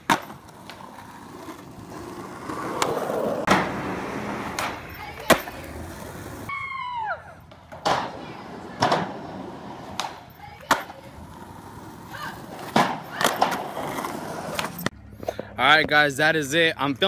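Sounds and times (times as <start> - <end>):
skateboard clacking: 0.0 - 6.5, 7.6 - 14.9
skateboard wheels rolling on asphalt: 0.0 - 6.5, 7.7 - 14.9.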